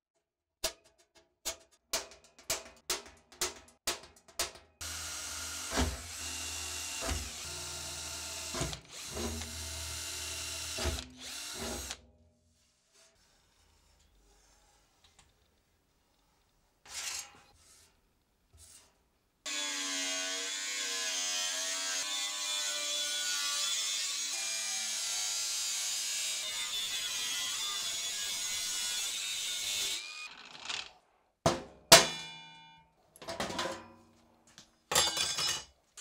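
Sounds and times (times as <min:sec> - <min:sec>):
angle grinder cutting steel: 0:04.8 - 0:12.0, 0:19.5 - 0:30.8.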